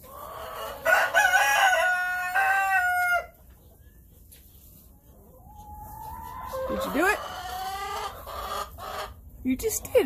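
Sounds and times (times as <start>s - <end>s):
rooster crowing: 0.8s - 3.3s.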